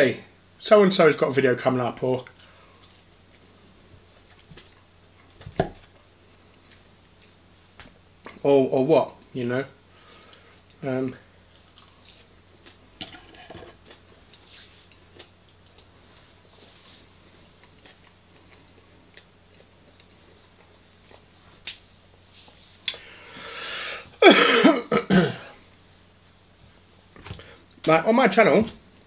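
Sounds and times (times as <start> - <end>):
man chewing food: 2.3 - 8.4, 9.9 - 23.6
cough and throat clearing: 24.2 - 25.6.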